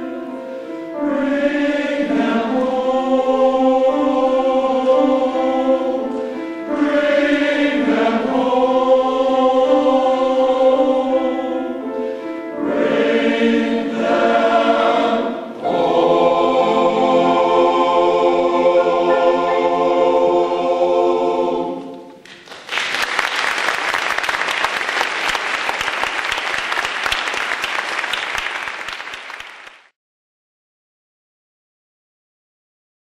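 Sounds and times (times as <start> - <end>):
men's choir singing: 1.0 - 11.9, 12.6 - 22.2
audience applause: 22.2 - 29.9.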